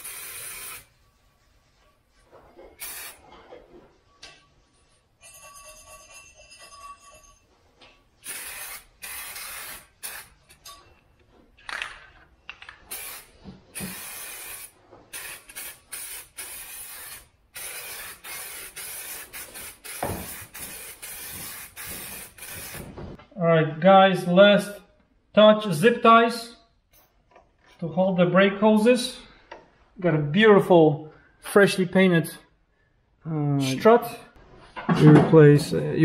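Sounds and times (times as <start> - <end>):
aerosol spray hissing: 0.0 - 0.9, 2.8 - 3.2, 8.2 - 10.4, 12.9 - 23.0.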